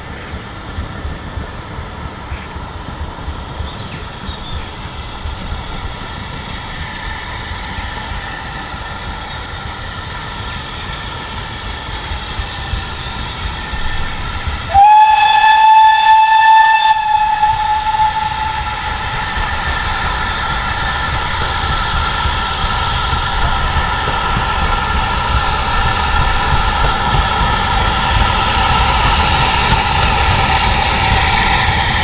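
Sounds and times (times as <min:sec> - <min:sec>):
low rumble of train: 0:00.0 - 0:32.0
steam locomotive whistle: 0:14.7 - 0:19.6.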